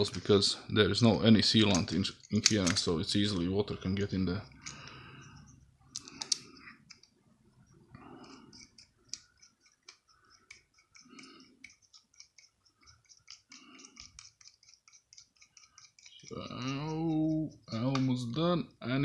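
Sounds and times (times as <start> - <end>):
small metal parts clicking: 1.6 - 3.2, 4.5 - 18.2
screwdriver working metal: 8.2 - 17.9.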